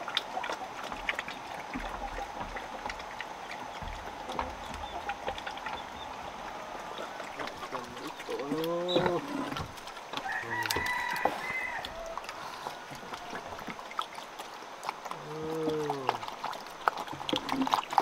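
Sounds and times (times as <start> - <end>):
piglets chewing and rooting: 0.0 - 18.0
rooster crowing: 10.2 - 13.5.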